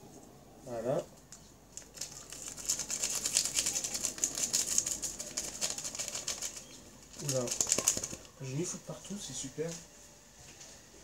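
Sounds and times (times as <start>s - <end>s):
paper sachet tearing and crinkling: 1.7s - 8.3s.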